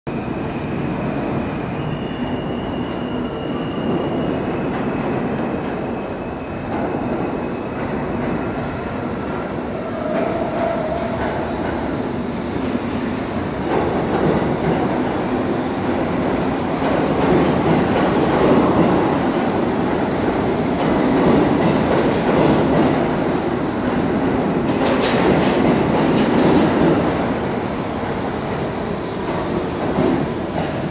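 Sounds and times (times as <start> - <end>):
subway train rumbling: 0.1 - 30.9
train wheel squeals: 0.2 - 12.9.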